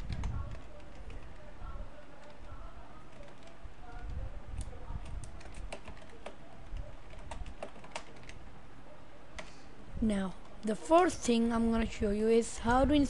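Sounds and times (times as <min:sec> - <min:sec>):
typing on computer keyboard: 0:00.0 - 0:03.6, 0:04.5 - 0:08.4
low steady hum: 0:00.0 - 0:13.0.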